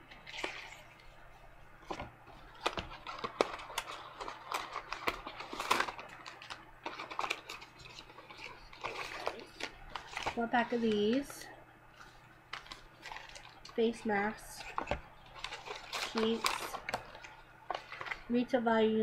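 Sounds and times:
face-mask packets crinkling: 1.8s - 18.3s.

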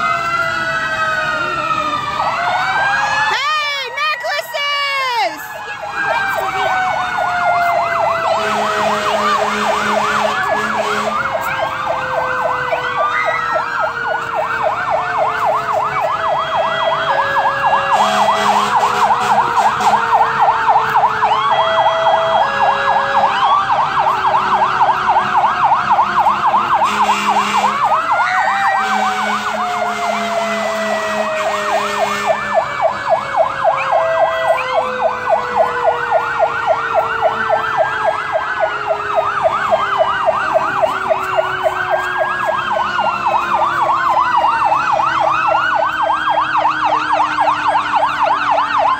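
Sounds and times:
electronic siren yelp: 0.0s - 48.9s
wailing siren: 0.0s - 48.9s
horn blasts: 8.2s - 11.5s, 17.8s - 20.2s, 26.8s - 28.0s, 28.7s - 32.6s.

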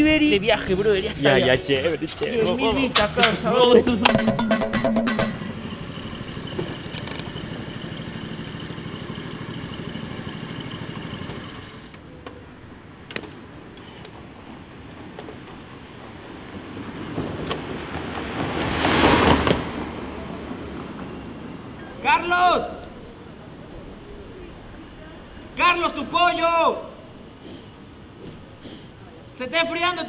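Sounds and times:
motor scooter engine: 4.1s - 12.3s.

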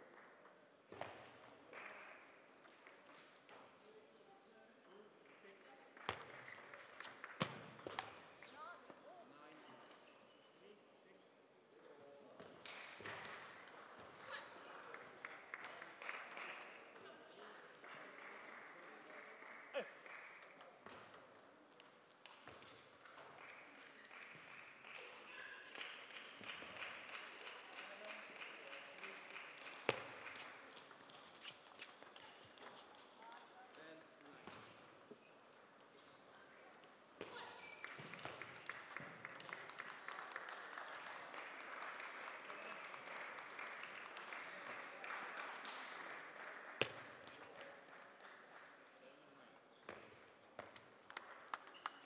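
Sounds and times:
spectators applauding: 17.8s - 20.6s, 23.4s - 30.7s, 37.7s - 46.8s.

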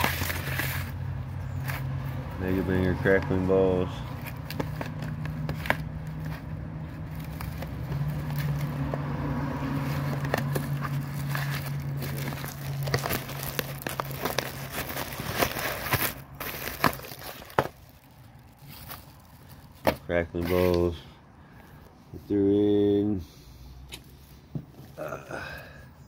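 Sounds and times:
cardboard box rustling: 4.1s - 21.0s
plastic wrap crinkling: 9.8s - 20.9s.

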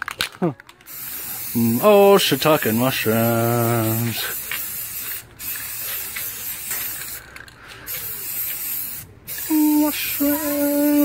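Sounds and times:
aerosol spray can hissing: 0.9s - 11.0s
person calling out loudly: 9.5s - 11.0s.

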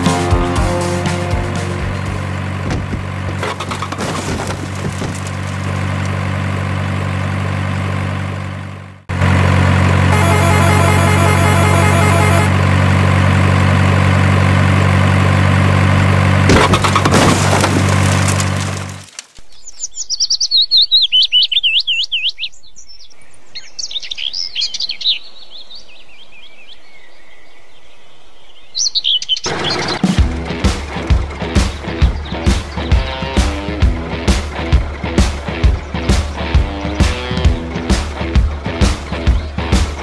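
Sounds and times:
music with a beat: 0.0s - 2.1s, 30.2s - 40.0s
truck engine running: 0.0s - 19.1s, 29.5s - 40.0s
clatter: 2.0s - 7.6s, 15.2s - 19.4s
birds chirping: 19.4s - 40.0s.

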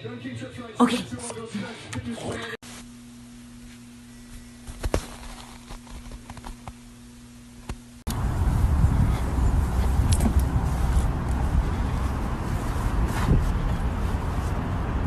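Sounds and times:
wind buffeting microphone: 8.1s - 15.0s.

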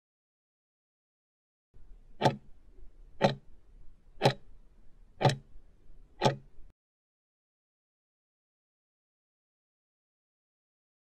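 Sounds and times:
clock ticking: 2.2s - 2.6s, 3.2s - 3.5s, 4.2s - 4.5s, 5.2s - 5.5s, 6.2s - 6.6s.

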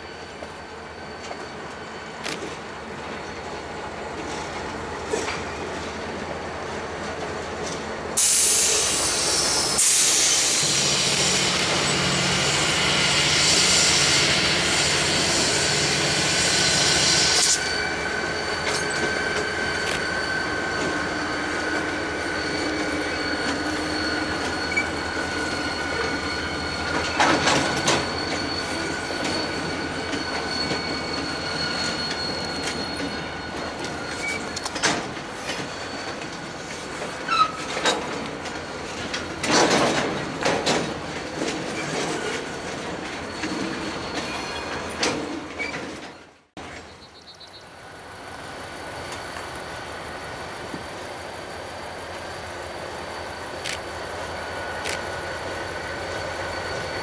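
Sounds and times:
freight train rolling past: 0.0s - 57.0s
high wheel squeal: 0.0s - 57.0s.

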